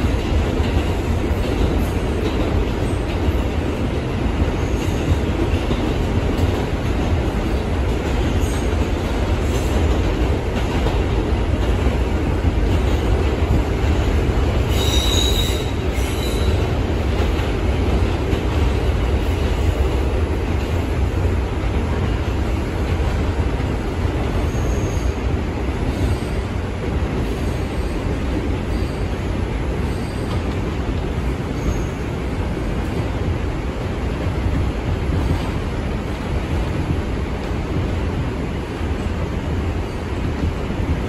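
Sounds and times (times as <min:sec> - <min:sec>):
subway wheels rumbling on rail: 0:00.0 - 0:41.0
high wheel squeal: 0:14.7 - 0:16.6.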